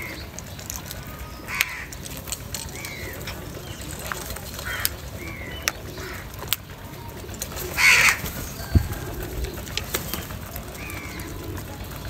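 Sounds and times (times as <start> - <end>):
beaks pecking clay bowl: 0.0 - 12.0
crow cawing: 1.2 - 2.0, 4.6 - 6.3, 7.7 - 9.4, 10.8 - 11.4.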